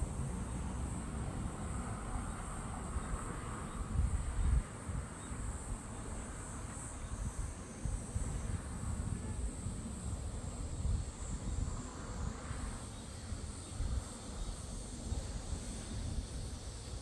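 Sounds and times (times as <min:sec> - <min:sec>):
wind buffeting microphone: 0:00.0 - 0:06.2, 0:06.8 - 0:17.0
high-pitched insect chorus: 0:00.0 - 0:17.0.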